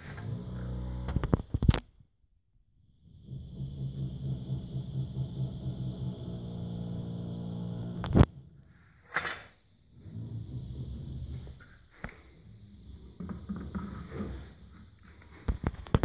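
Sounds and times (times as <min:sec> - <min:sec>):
low buzzing hum: 0:02.9 - 0:08.8, 0:09.7 - 0:14.8.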